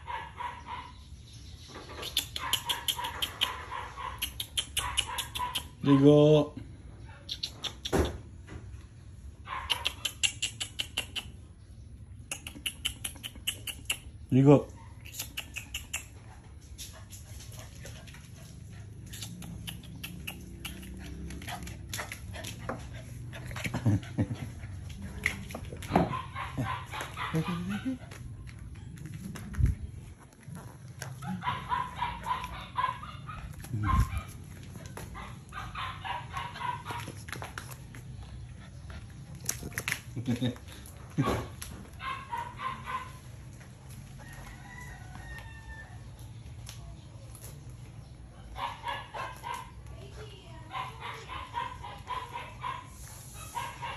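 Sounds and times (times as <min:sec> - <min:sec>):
dog making low sounds: 0:18.4 - 0:37.2
dog claws clicking on linoleum: 0:19.1 - 0:23.8
rooster crowing: 0:44.2 - 0:46.2.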